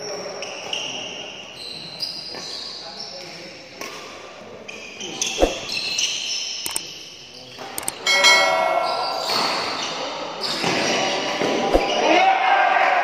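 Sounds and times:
sharp clicks: 6.6 - 6.9, 7.8 - 8.0
bright bell chime: 8.0 - 9.3.

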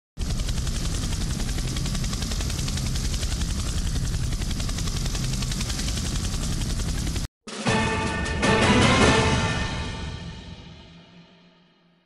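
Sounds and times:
helicopter engine and rotor drone: 0.2 - 7.3.

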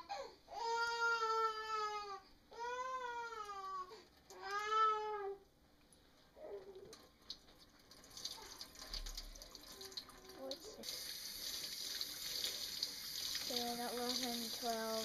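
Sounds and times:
faucet water running: 6.9 - 15.0.

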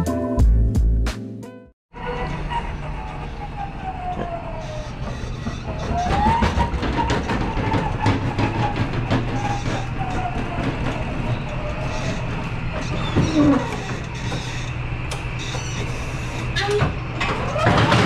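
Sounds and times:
pallet jack motor whining: 2.0 - 18.0
wheels rattling over tile floor: 4.6 - 18.0.

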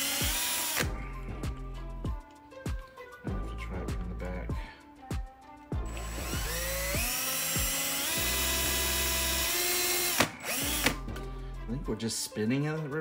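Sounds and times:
cordless drill motor whining: 0.0 - 0.9, 5.9 - 11.0.

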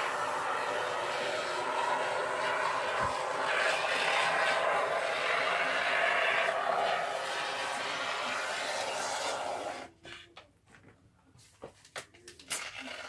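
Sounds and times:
spray foam can hissing: 0.0 - 9.9.

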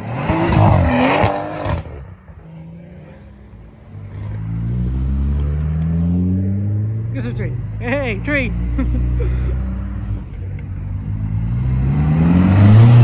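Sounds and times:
car engine revving with cracks: 0.0 - 2.2, 10.1 - 13.0
car accelerating: 0.0 - 13.0.

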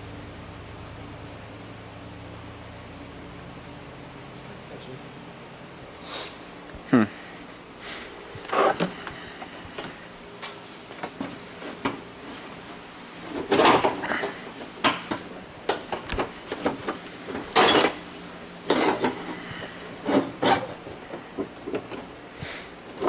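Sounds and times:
tools clattering on car bumper: 13.3 - 18.0, 18.6 - 19.4.

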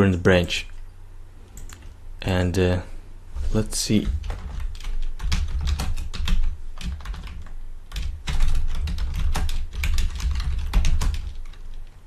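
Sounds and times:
typing on computer keyboard: 1.6 - 1.9, 4.0 - 11.9.

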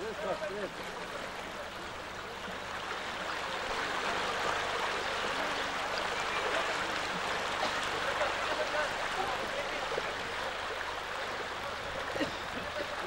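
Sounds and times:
stream rushing over stones: 0.0 - 13.0.

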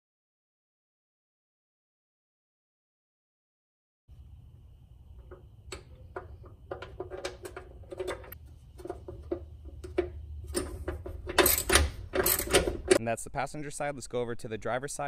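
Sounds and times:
low steady hum: 4.1 - 15.0.

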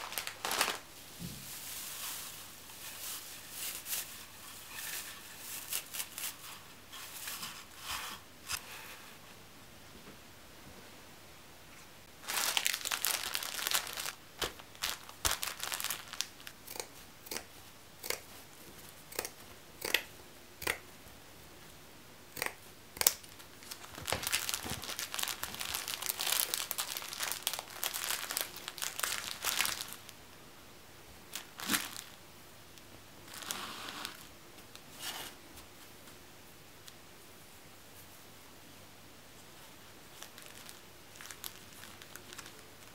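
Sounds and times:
plastic packaging crinkling: 0.0 - 7.7, 12.2 - 16.6, 23.1 - 30.2, 31.3 - 32.2, 33.3 - 34.8, 40.0 - 42.9.

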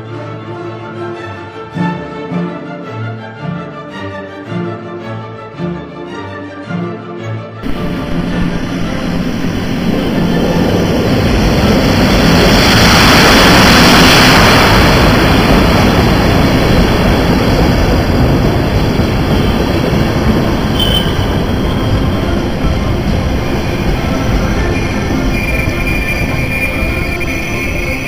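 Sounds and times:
train wheels rumbling on rails: 7.6 - 28.0
high squeal: 19.0 - 28.0.

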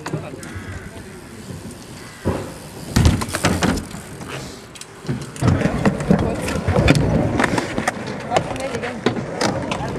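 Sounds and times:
bike landing thud on concrete: 1.6 - 4.3.

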